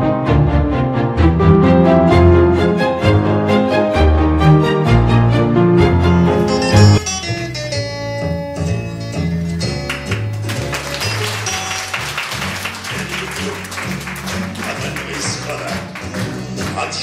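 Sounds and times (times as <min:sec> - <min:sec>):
instrumental music with bass line: 0:00.0 - 0:12.8.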